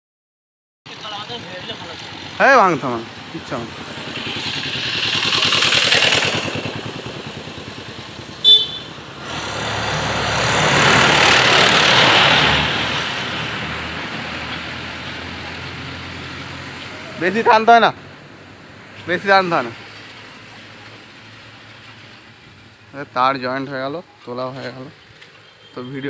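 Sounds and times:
road vehicles passing: 0.9s - 26.0s
short horn toot: 8.4s - 8.9s.

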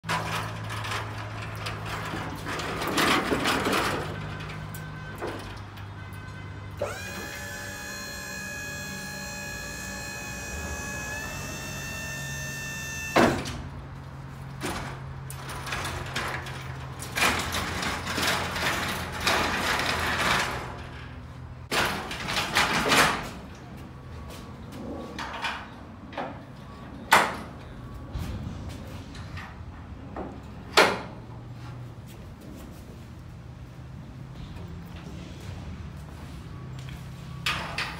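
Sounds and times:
shelving unit on casters rattling: 0.0s - 6.0s, 6.8s - 26.6s
hydraulic pump motor whining: 6.8s - 13.6s.

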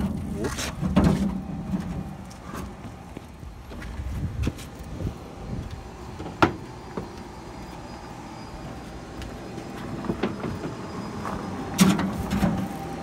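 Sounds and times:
wheelbarrow rolling on gravel: 8.6s - 13.0s.

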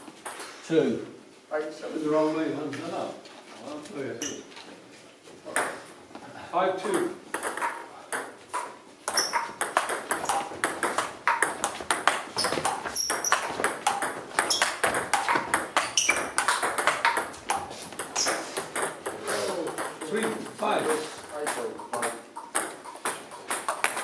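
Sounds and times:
table tennis ball pocks: 7.3s - 24.0s.

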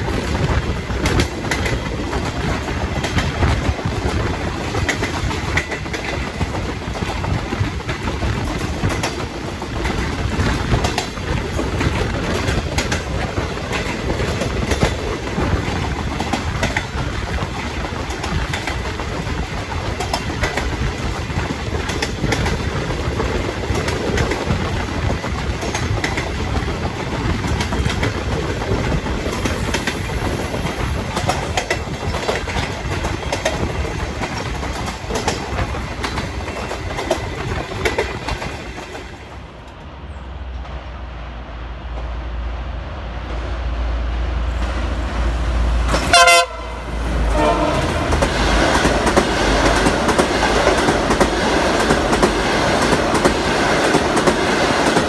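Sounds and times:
train wheels clattering: 0.0s - 39.8s, 44.5s - 55.0s
train rumble: 0.0s - 55.0s.

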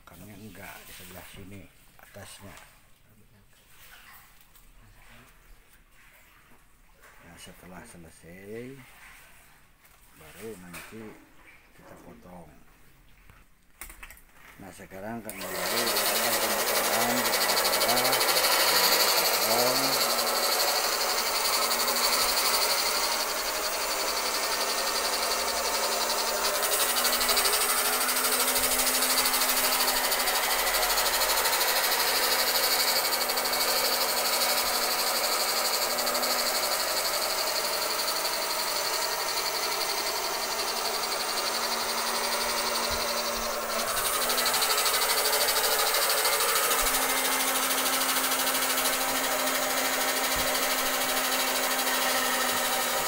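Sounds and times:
cloth cutting machine humming: 15.3s - 53.0s.

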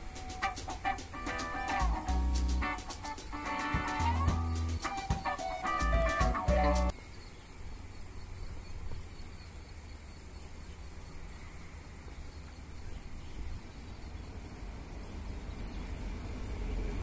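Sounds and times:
guitar music: 0.0s - 6.9s
high insect buzz: 0.0s - 7.0s
distant train rumble: 13.6s - 17.0s.

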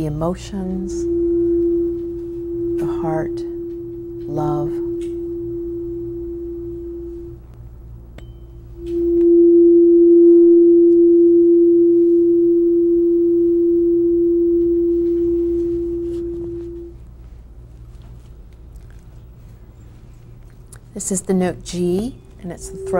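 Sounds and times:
tuning fork ringing: 0.0s - 7.5s, 8.2s - 17.0s, 21.6s - 22.9s.

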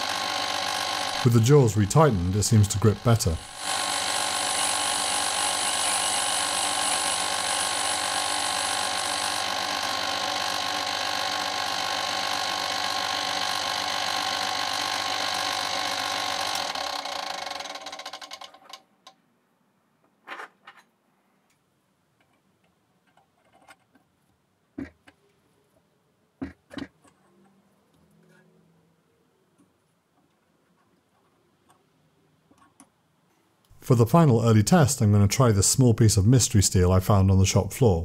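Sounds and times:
lathe motor running: 0.0s - 18.7s.

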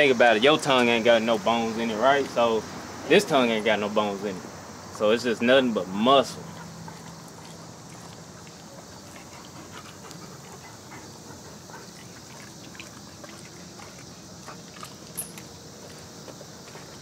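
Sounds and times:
dogs chewing and tearing meat: 6.3s - 17.0s.

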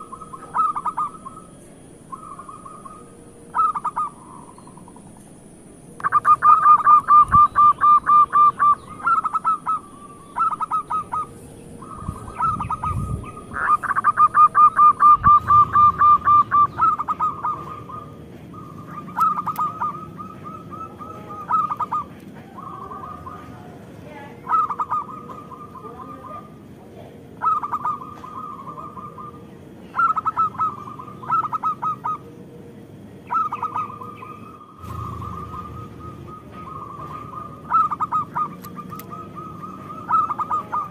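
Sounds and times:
dove cooing: 0.0s - 40.9s.

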